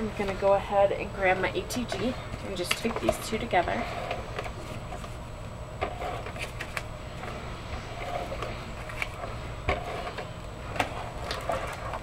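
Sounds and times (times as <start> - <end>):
paper handling: 5.8 - 7.4, 8.0 - 12.0.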